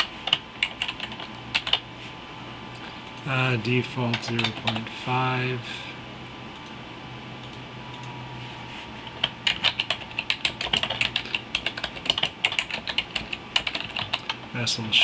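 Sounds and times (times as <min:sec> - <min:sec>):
keyboard typing: 0:00.0 - 0:01.8, 0:04.1 - 0:04.9, 0:09.1 - 0:14.5
faint low hum: 0:00.0 - 0:15.0.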